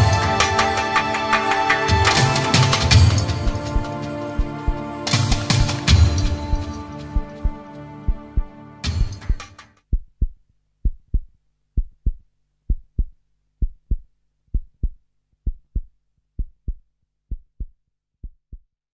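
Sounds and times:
music track: 0.0 - 9.8
heartbeat thumps: 2.0 - 18.7.

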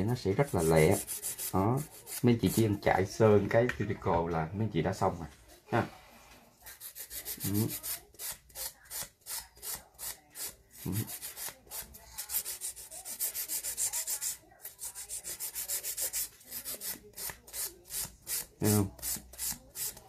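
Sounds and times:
nail file rasping on fingernail: 0.4 - 2.8, 6.6 - 20.0.

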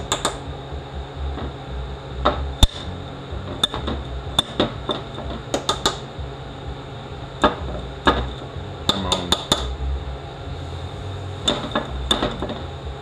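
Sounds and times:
hammer tapping metal punch: 0.0 - 0.4, 3.5 - 6.0, 7.4 - 9.7.

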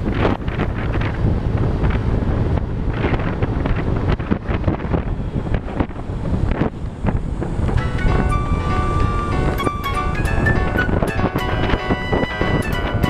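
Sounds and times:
road noise: 0.0 - 13.0
wind rushing over microphone: 0.0 - 13.0
music: 7.8 - 13.0.

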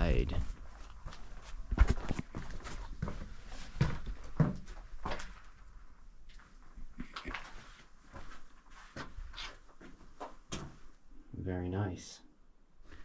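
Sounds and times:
footsteps on stone floor: 0.4 - 5.4.

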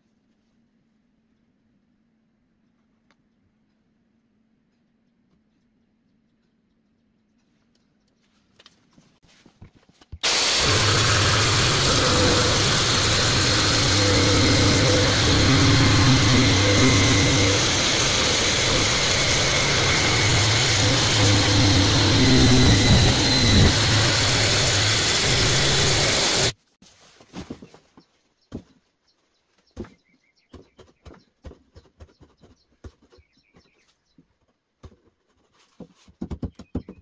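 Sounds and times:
jigsaw cutting wood: 10.2 - 26.6.

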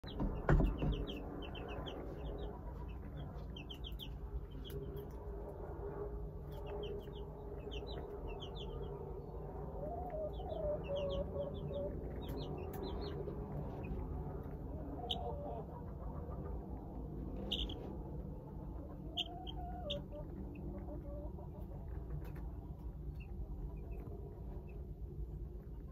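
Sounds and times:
baby chicks peeping: 0.0 - 25.9
steady low hum: 0.0 - 25.9
thump: 0.2 - 1.2.

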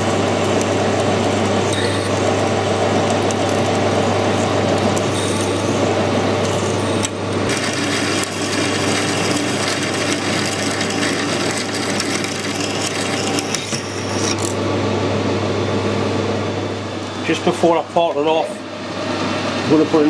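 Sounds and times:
lathe humming: 0.0 - 20.0
drill cutting into metal bar: 7.5 - 14.6.

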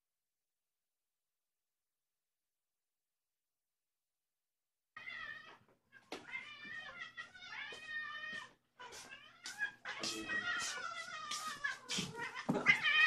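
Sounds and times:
cat meowing: 5.0 - 13.0.

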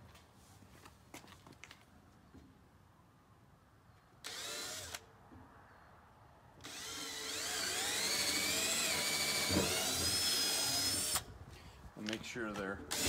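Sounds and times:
cordless drill whining: 4.2 - 5.0, 6.6 - 11.3.

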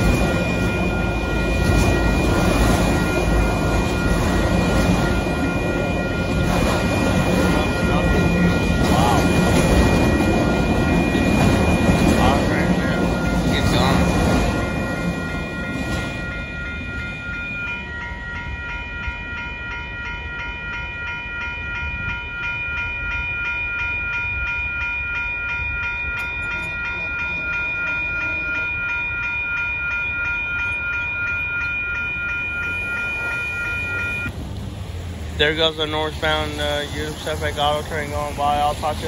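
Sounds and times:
crossing warning bells ringing: 0.0 - 39.0
freight train cars passing: 0.0 - 39.0
second ringing tone: 26.2 - 34.3.

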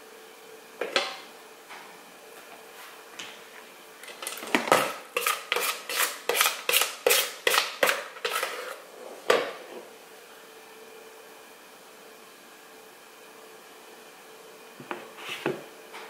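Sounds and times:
spoon scraping a mixing bowl: 4.0 - 8.9.

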